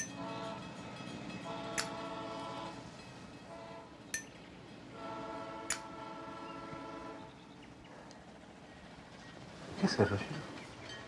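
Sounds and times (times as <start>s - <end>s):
distant train horn: 0.0s - 4.2s, 4.8s - 7.8s.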